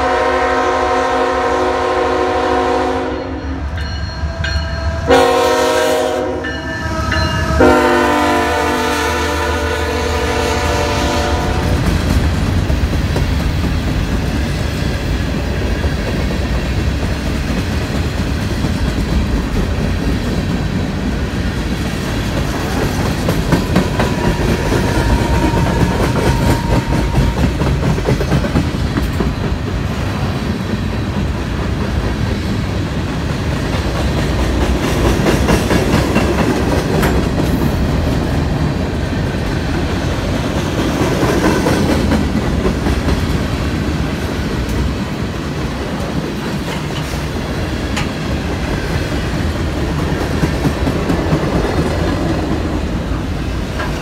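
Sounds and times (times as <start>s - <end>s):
freight train rumbling past: 0.0s - 54.0s
wheels clacking over rail joints: 11.3s - 54.0s.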